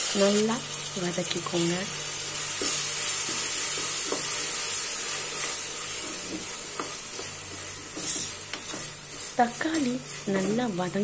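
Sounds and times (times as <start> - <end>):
vegetables sizzling in hot oil: 0.0 - 11.0
wooden spatula scraping pan: 2.6 - 11.0.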